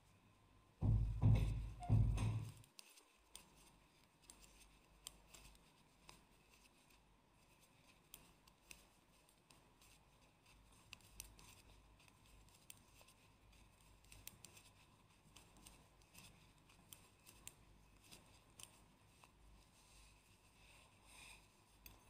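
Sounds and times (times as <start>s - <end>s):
knitting needles clicking: 2.2s - 6.7s, 7.4s - 19.4s, 21.7s - 22.0s.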